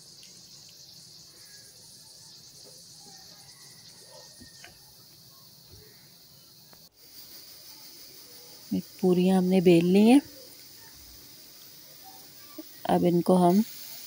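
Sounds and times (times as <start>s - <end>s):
steady high hiss: 0.0s - 14.0s.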